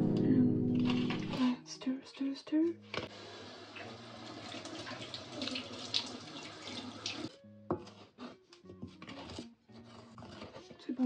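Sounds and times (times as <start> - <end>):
batter stirred in a bowl: 7.8 - 11.0.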